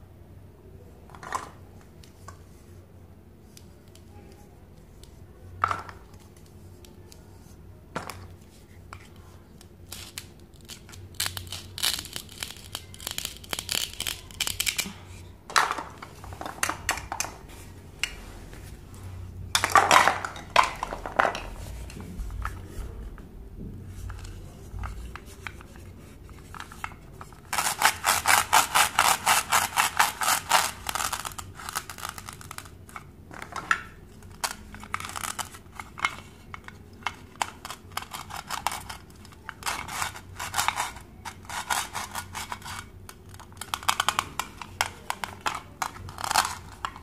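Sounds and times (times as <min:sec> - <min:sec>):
plastic toy pieces clicking: 0:09.9 - 0:14.9, 0:27.5 - 0:32.7, 0:34.3 - 0:47.0.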